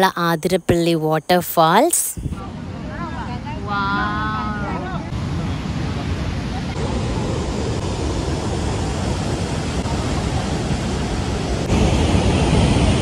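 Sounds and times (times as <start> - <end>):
waterfall rushing: 3.6 - 13.0.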